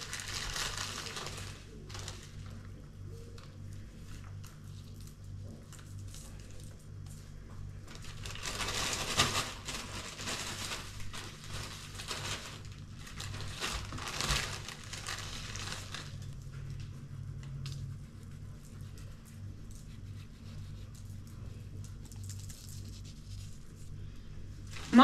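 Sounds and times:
plastic bag crinkling: 0:00.0 - 0:02.8, 0:07.8 - 0:16.9, 0:19.3 - 0:25.0.

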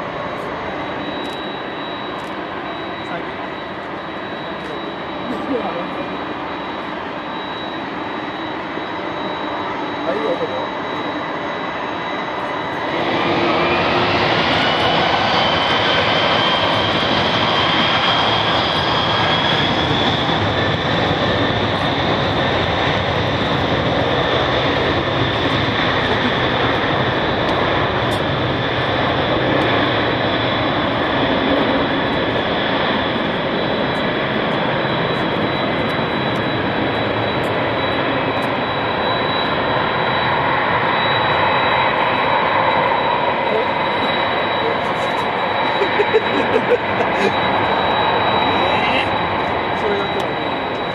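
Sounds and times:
jet engines roaring with whine: 0:00.0 - 0:50.9.

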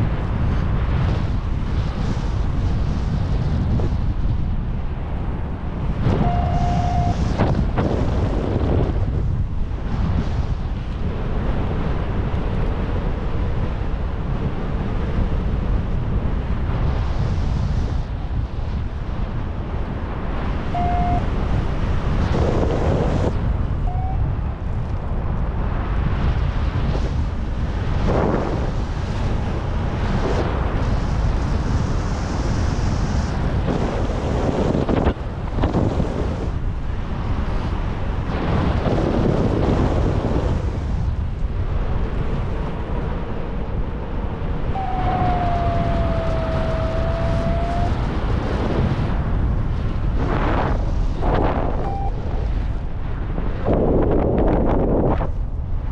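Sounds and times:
wind buffeting microphone: 0:00.0 - 0:55.9
steady tone: 0:20.7 - 0:21.4, 0:41.7 - 0:48.2, 0:51.2 - 0:52.7.

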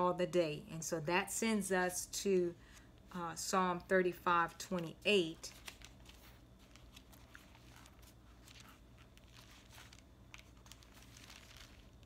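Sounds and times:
low steady hum: 0:00.0 - 0:12.0
thin pages rustling: 0:04.7 - 0:12.0.

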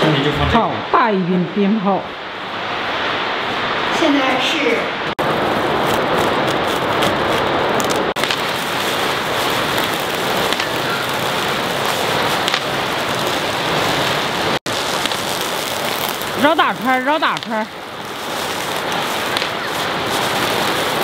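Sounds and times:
firecrackers going off: 0:05.1 - 0:21.0.

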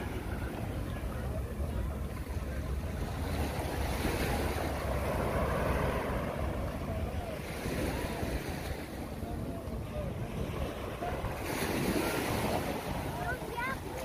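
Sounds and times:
waves washing over rocks: 0:03.0 - 0:09.2, 0:10.0 - 0:14.0.

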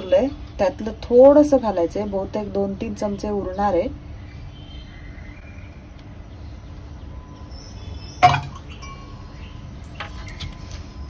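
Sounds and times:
faint background noise: 0:00.0 - 0:11.0
steel bowl clinking: 0:08.2 - 0:09.5.

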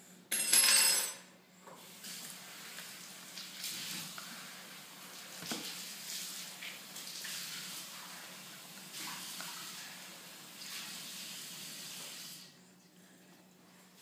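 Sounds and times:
tap water running: 0:01.7 - 0:12.6.

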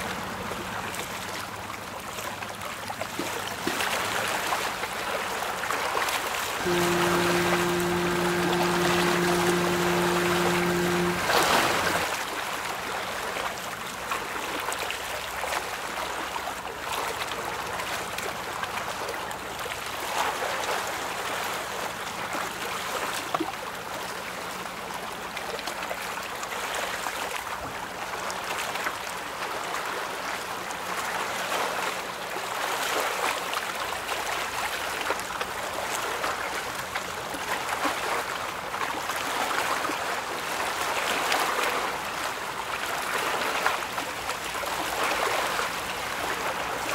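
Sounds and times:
faint low hum: 0:06.6 - 0:12.1.

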